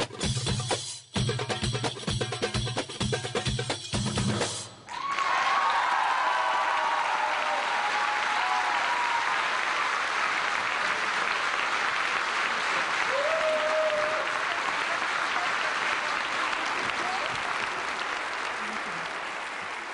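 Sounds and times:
audience applauding: 0:04.8 - 0:19.9
voices cheering: 0:04.9 - 0:09.8, 0:12.9 - 0:19.2.

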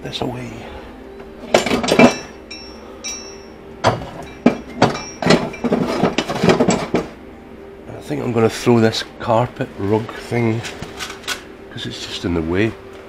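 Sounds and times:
hard objects knocking and clattering: 0:01.5 - 0:02.4, 0:03.8 - 0:07.2
short ringing clinks: 0:01.5 - 0:07.0.

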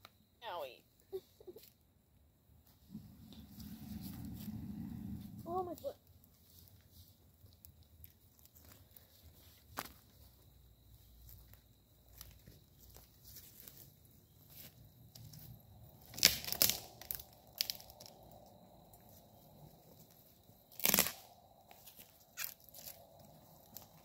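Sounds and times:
dry twigs crunching and snapping: 0:07.4 - 0:10.1, 0:16.0 - 0:18.2, 0:20.7 - 0:24.0.

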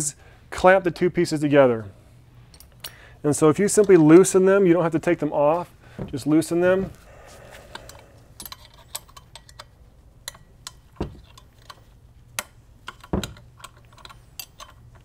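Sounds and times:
metal wrench clicking and clinking: 0:07.8 - 0:15.0.

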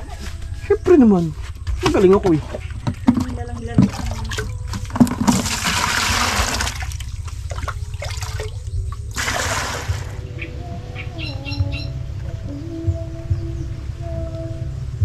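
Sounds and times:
low steady rumble: 0:00.0 - 0:15.0
water sloshing and splashing: 0:01.5 - 0:10.4.

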